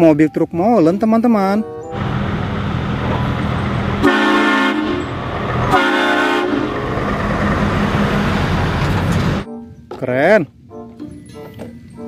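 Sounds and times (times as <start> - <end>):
diesel engine running: 1.8 - 9.4
truck air horn blasts: 3.9 - 7.1.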